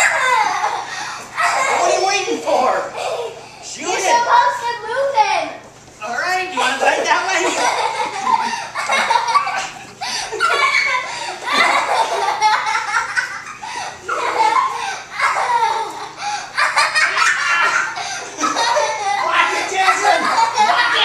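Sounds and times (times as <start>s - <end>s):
children and adults laughing: 0.0s - 2.2s, 7.0s - 21.0s.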